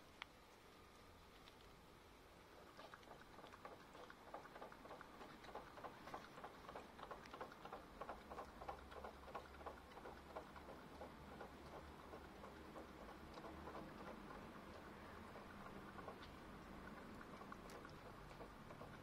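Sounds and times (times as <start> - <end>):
dog lapping water: 2.5 - 19.0.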